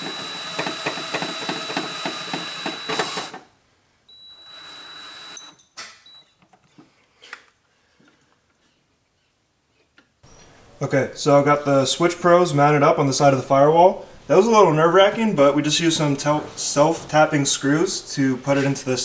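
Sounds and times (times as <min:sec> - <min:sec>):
cordless drill whining: 0:00.0 - 0:03.5, 0:04.1 - 0:06.2.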